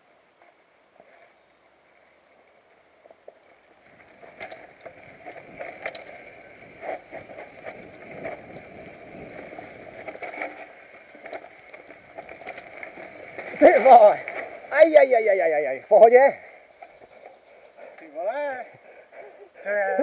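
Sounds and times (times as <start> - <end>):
bike tyres on dirt trail: 0.0 - 20.0
bike rattling and knocking: 3.2 - 17.6.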